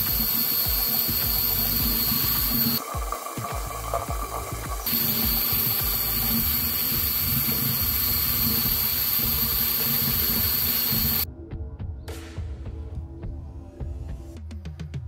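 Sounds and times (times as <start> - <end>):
air motor hissing: 0.0 - 11.2
constant motor hum: 0.0 - 11.2.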